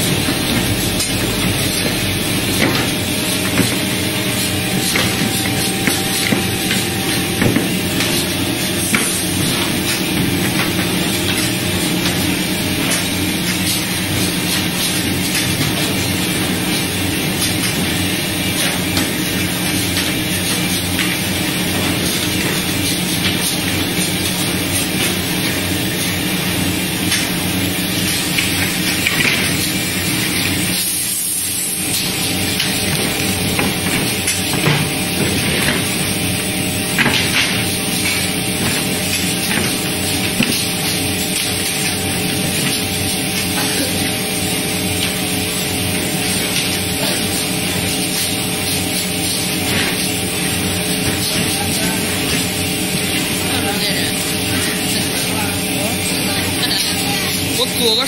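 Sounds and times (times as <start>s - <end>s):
electric motors humming: 0.0s - 58.0s.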